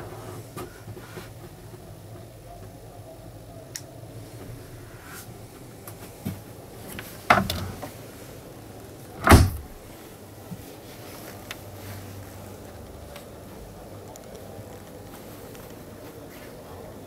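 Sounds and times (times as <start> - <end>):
steady low hum: 1.5 - 17.0
dull thuds: 9.2 - 9.9.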